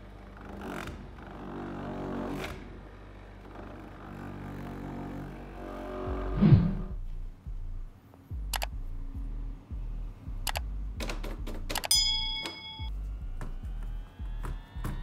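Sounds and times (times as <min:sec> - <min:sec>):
mouse-click sound effects: 0:08.5 - 0:08.7
bell-like chime: 0:11.9 - 0:13.0.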